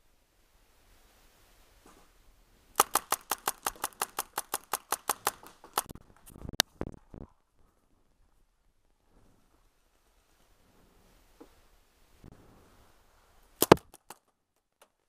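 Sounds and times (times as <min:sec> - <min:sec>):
paintball marker firing: 0:02.8 - 0:05.9, 0:13.6 - 0:14.2
sharp crack: 0:02.8 - 0:06.7, 0:13.6 - 0:15.0.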